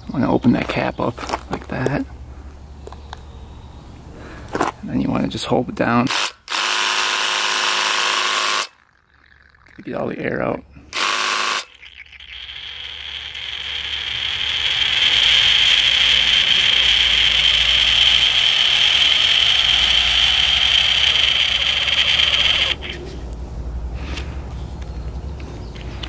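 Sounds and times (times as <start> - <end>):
paint sprayer pump running: 6.1 - 8.7, 10.9 - 23.0.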